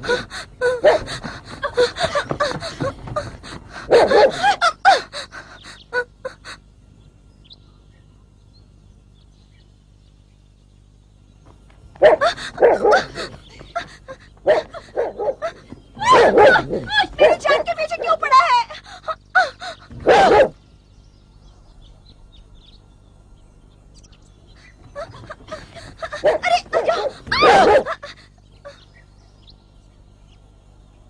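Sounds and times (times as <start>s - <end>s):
dog barking: 0.8s - 1.1s, 3.9s - 4.6s, 12.0s - 13.3s, 14.4s - 18.3s, 20.0s - 20.6s, 26.0s - 28.1s.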